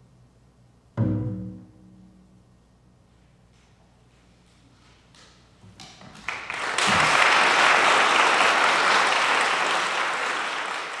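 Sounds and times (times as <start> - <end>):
audience applause: 6.2 - 11.0.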